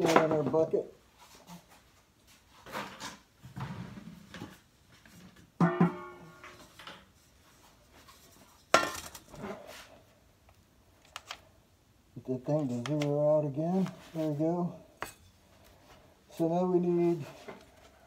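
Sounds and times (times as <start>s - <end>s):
metal bowl clanking: 5.6s - 6.8s
soft rustling scrapes: 7.1s - 8.7s, 9.3s - 10.2s, 13.6s - 18.0s.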